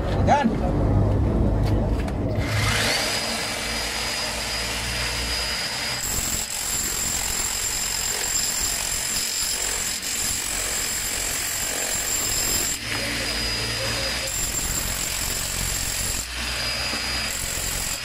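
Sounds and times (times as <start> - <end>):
demolition hammer chipping concrete: 2.8 - 18.0.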